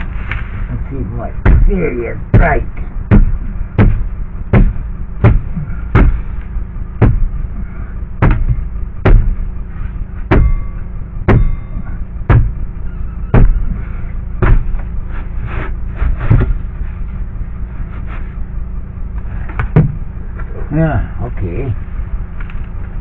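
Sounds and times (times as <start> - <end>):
heavy blows on plywood: 1.4 - 9.6, 10.2 - 16.8, 19.4 - 20.2.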